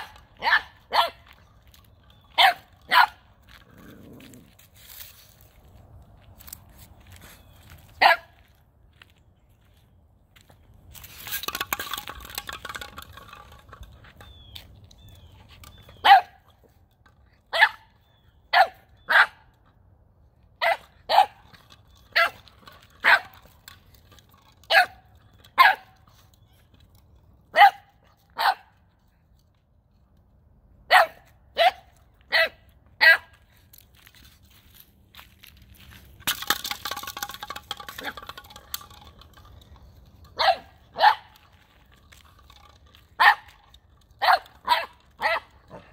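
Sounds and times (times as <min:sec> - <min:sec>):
puppy barking: 0:00.0 - 0:01.2, 0:02.4 - 0:03.2, 0:08.0 - 0:08.3, 0:16.0 - 0:16.4, 0:18.5 - 0:19.4, 0:20.6 - 0:21.4, 0:27.5 - 0:28.7, 0:30.9 - 0:33.3, 0:40.4 - 0:41.4, 0:44.2 - 0:45.9
scuffling rustle: 0:03.5 - 0:09.7.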